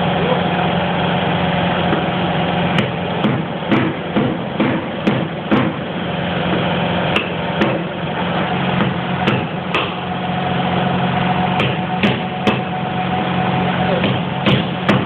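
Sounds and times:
steady machine hum: 0.0s - 15.0s
hammer striking chisel on metal: 2.8s - 5.8s, 8.8s - 10.0s, 11.6s - 12.7s, 14.0s - 15.0s.

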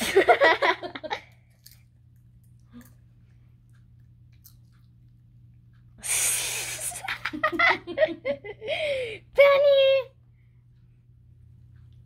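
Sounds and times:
person laughing: 0.0s - 1.3s, 6.4s - 9.2s.

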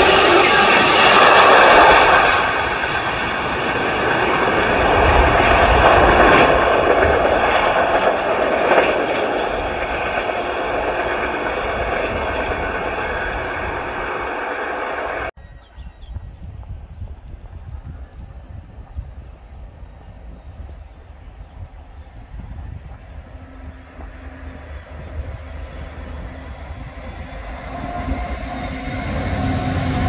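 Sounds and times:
freight train passing: 0.0s - 15.4s, 17.5s - 30.0s.

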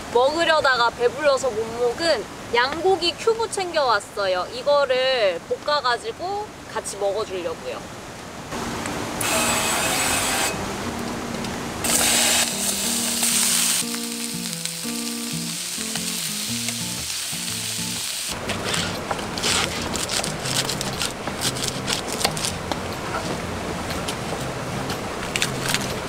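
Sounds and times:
short tune: 9.2s - 10.6s
meat sizzling and crackling: 11.8s - 22.6s
aerosol oil spray hissing: 11.9s - 18.4s.

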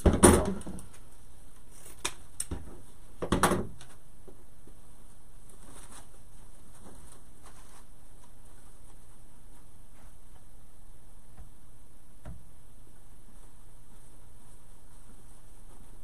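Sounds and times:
crinkling rustle: 3.8s - 10.7s, 13.0s - 16.0s
faint rustles: 4.7s - 10.8s, 12.8s - 16.0s.

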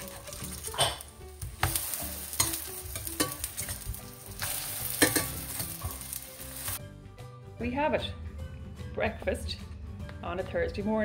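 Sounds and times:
pancakes sizzling in pan: 1.4s - 6.8s.

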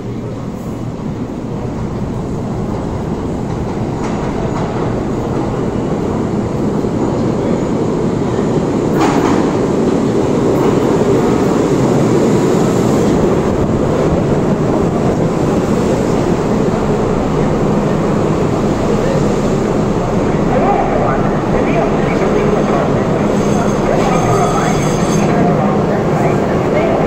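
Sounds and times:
subway train wheels rumbling: 0.0s - 27.0s.

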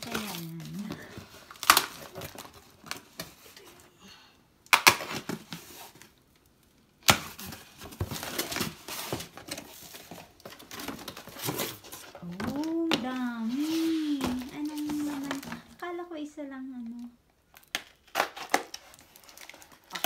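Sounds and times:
packing tape ripping: 0.0s - 3.1s, 17.6s - 20.0s
cardboard flaps rustling: 7.2s - 15.8s.

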